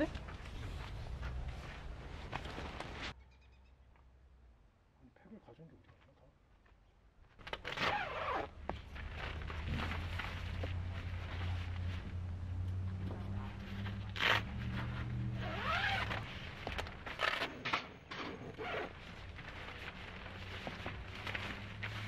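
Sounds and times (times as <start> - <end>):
tent zipper being pulled: 7.5 - 11.9, 13.3 - 17.6, 18.4 - 22.0.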